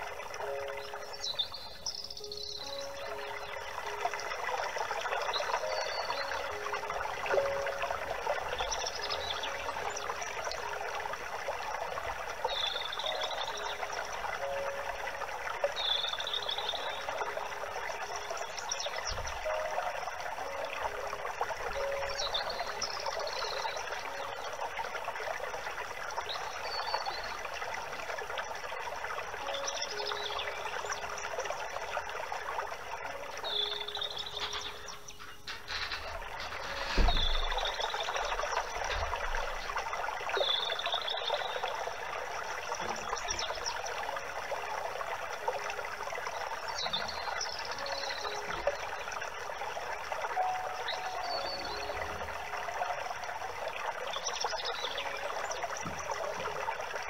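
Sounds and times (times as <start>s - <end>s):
water trickling: 0.0s - 57.0s
bird chirping: 0.4s - 4.4s, 5.0s - 10.8s, 12.4s - 15.0s, 15.6s - 19.8s, 21.7s - 24.6s, 29.4s - 31.6s, 33.1s - 39.8s, 40.4s - 41.8s, 46.6s - 49.0s, 50.4s - 52.3s
low thump: 35.6s - 37.8s.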